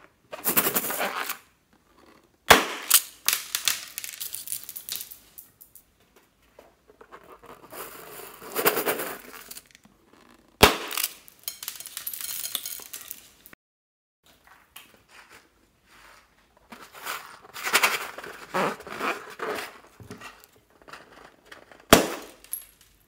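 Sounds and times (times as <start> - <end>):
beads rattling in glass bowl: 3.3 - 5.8, 11.0 - 13.5
balloon popping: 10.6 - 11.4.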